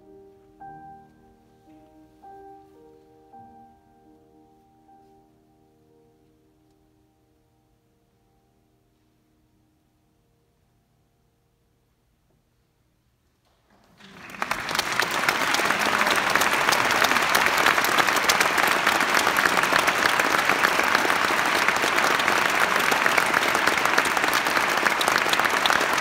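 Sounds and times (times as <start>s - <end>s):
audience applauding: 13.8s - 26.0s.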